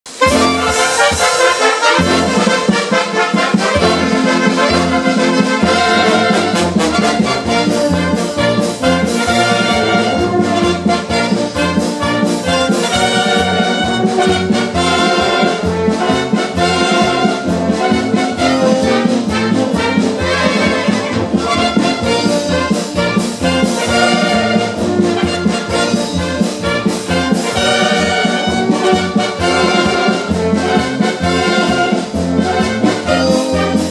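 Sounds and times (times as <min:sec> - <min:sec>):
military wind band playing: 0:00.1 - 0:33.9.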